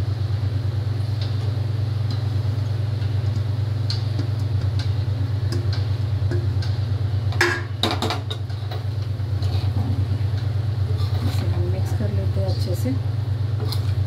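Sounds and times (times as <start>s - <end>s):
low mechanical hum: 0.0s - 14.0s
spatula scraping a metal pan: 10.9s - 11.5s.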